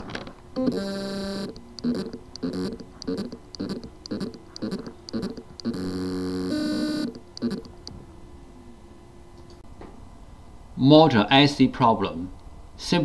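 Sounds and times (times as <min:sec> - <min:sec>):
hard drive motor pulsing: 0:00.5 - 0:08.1
held tone: 0:00.6 - 0:07.9.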